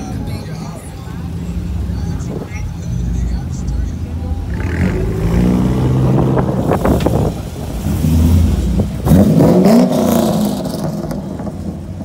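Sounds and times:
car engine revving: 3.1 - 12.0.

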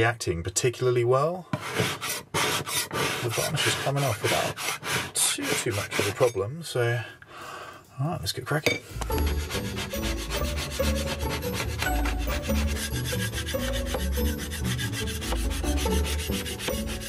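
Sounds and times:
putty knife scraping varnish: 1.6 - 6.4, 8.9 - 17.0.

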